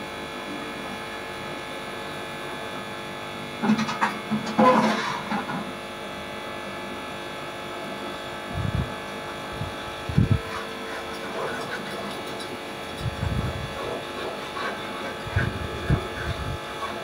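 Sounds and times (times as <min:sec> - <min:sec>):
buzzing hum: 0:00.0 - 0:17.0.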